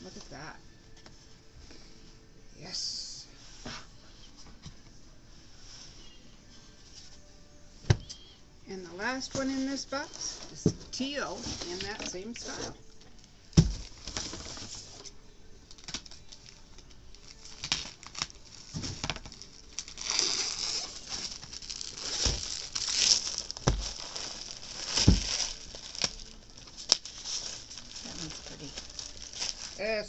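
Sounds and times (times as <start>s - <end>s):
plastic wrap crinkling: 9.3s - 30.0s
dull thumps: 13.5s - 14.3s.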